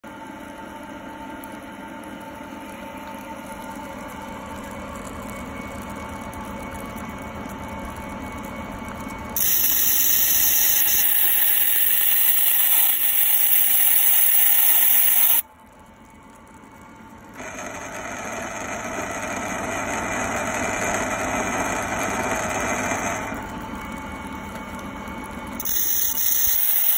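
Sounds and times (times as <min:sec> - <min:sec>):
cutting tool scraping stone: 0:09.4 - 0:15.4, 0:25.6 - 0:26.9
lathe motor hum: 0:09.4 - 0:15.4, 0:17.4 - 0:26.9.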